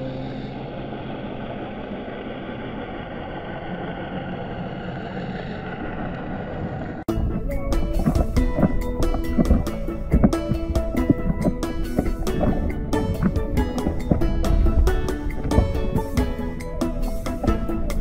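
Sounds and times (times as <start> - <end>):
muffled underwater rush: 0.0 - 18.0
music: 7.1 - 18.0.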